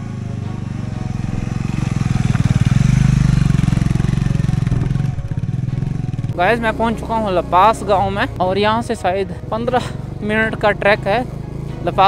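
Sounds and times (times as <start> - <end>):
motorcycle engine passing by: 0.0 - 8.2.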